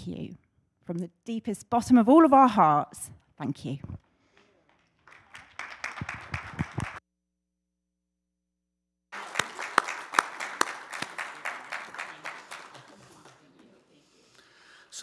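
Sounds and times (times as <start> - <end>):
crowd applauding: 4.2 - 7.0, 9.1 - 14.7.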